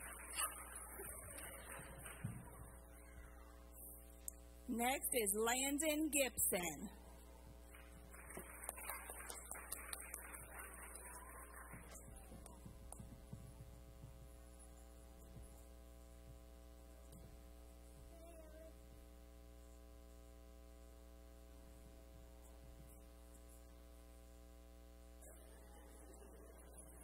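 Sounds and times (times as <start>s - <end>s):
electrical mains hum: 0.0s - 27.0s.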